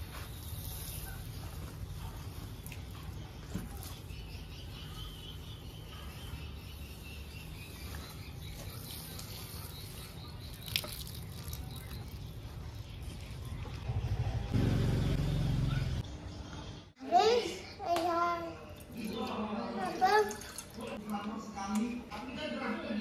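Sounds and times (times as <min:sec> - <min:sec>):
birds chirping: 0:00.0 - 0:17.9
water pattering onto soil: 0:07.9 - 0:12.3
low outdoor rumble: 0:11.2 - 0:17.0.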